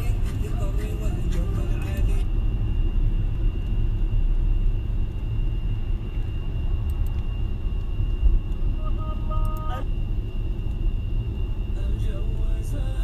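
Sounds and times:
car road and engine rumble: 0.0s - 13.0s
faint high tone: 8.7s - 9.9s.

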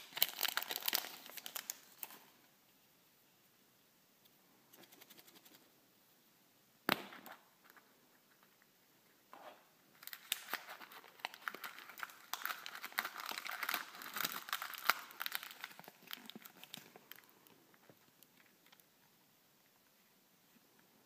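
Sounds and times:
plastic packet crinkling: 0.0s - 2.4s, 9.9s - 17.6s.

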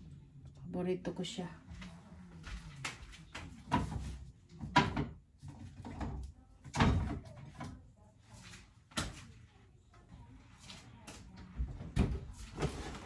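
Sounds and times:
containers knocking on fridge shelves: 3.6s - 7.2s.

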